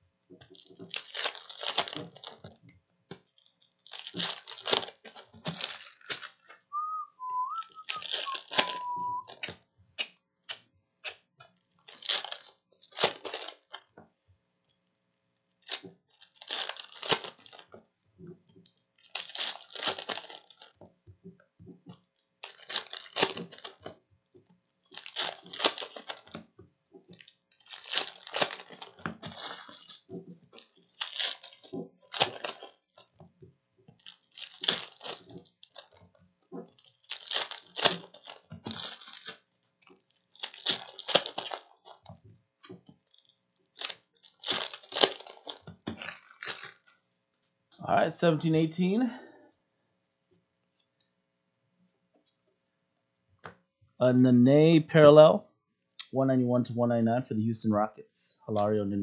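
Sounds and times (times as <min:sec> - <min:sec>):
foil wrappers tearing and crinkling: 0:00.4 - 0:02.6, 0:03.2 - 0:09.5, 0:11.1 - 0:13.9, 0:15.6 - 0:17.8, 0:18.6 - 0:20.8, 0:22.2 - 0:24.0, 0:24.8 - 0:26.5, 0:27.1 - 0:33.1, 0:33.9 - 0:47.1.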